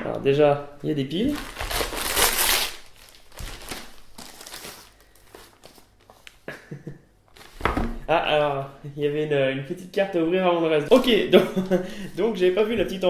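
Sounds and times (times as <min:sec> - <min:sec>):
paper and cardboard rustling: 0:01.2 - 0:06.3.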